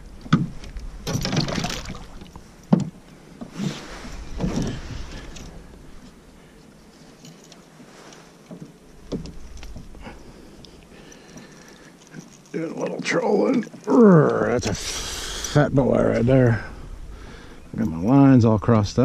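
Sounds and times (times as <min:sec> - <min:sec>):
fish thrashing and splashing: 0:01.1 - 0:02.4.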